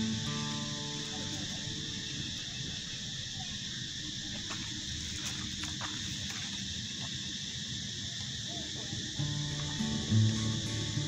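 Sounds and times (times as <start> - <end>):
insects chorus in trees: 0.0 - 11.0.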